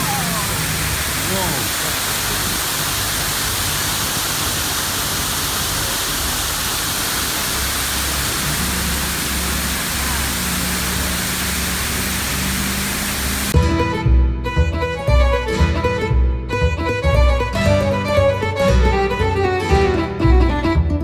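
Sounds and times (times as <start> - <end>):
waterfall rushing: 0.0 - 13.6
music: 13.6 - 21.0.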